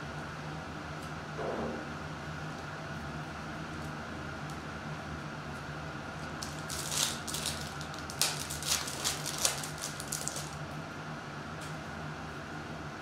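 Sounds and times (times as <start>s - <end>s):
steady low hum: 0.0s - 13.0s
foil wrapper crinkling and ripping: 6.2s - 10.6s.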